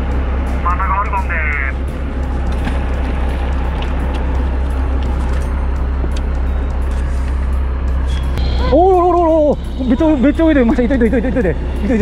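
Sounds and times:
boat engine drone: 0.0s - 12.0s
wind: 0.0s - 12.0s
water noise: 1.8s - 6.8s.

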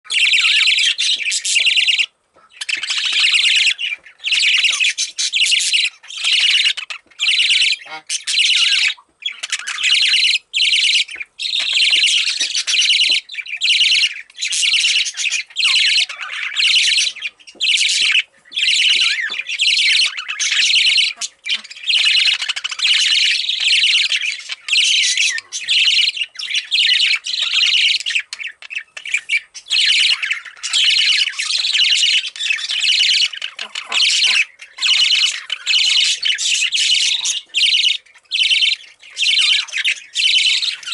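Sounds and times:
budgerigar chirping: 0.1s - 40.9s.

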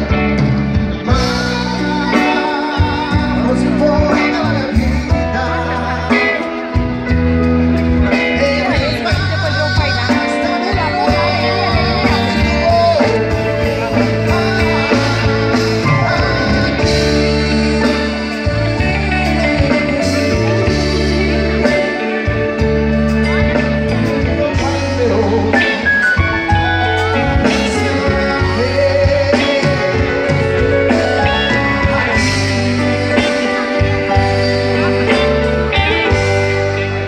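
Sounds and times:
live rock band: 0.0s - 37.0s
person singing: 0.0s - 37.0s.

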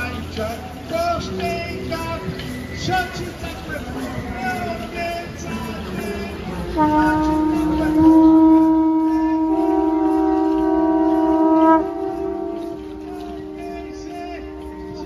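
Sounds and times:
conch shell trumpet blast: 6.7s - 15.0s
higher horn note: 6.7s - 15.0s.

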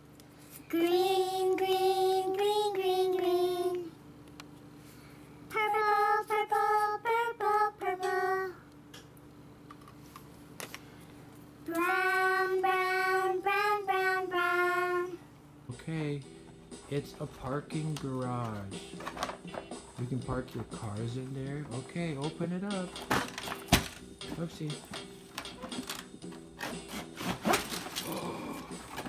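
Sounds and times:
faint steady hum: 0.0s - 26.6s
child-like voice singing: 11.7s - 15.2s.

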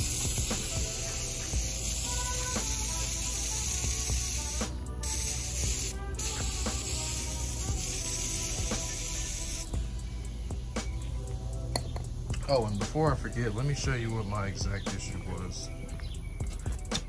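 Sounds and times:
water spraying and hissing: 0.0s - 9.9s
background music: 0.0s - 17.0s.

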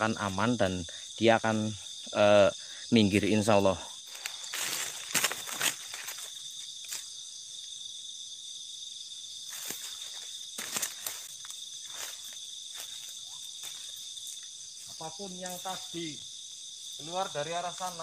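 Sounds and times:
crickets and insects chirring: 0.0s - 18.0s
crackles and rustles in ground cover: 3.5s - 7.8s, 9.3s - 18.0s.

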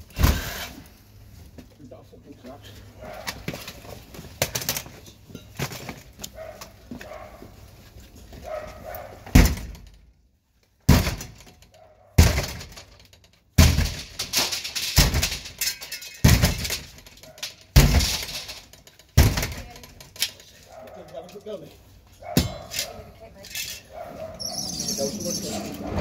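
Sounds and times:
battering ram slamming into door: 9.3s - 9.8s.

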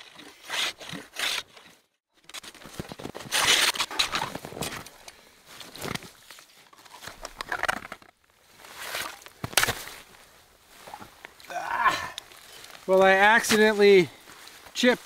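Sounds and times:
metal bar scraping ice: 0.0s - 2.5s, 3.1s - 4.7s.

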